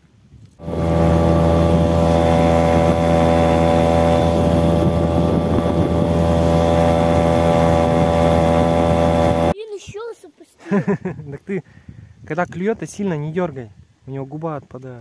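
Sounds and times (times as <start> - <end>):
outboard motor running: 0.6 - 9.6.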